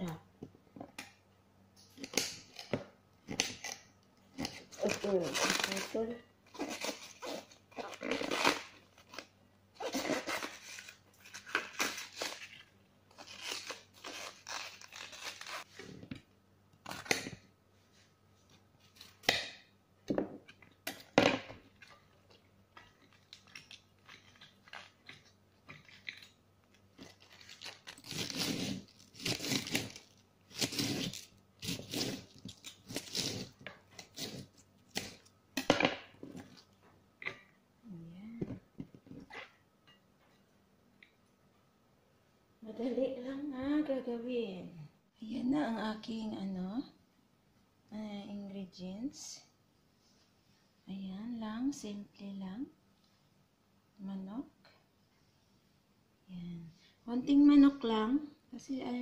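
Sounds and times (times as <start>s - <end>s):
cabbage leaves tearing and crunching: 4.4s - 15.7s, 27.0s - 35.3s.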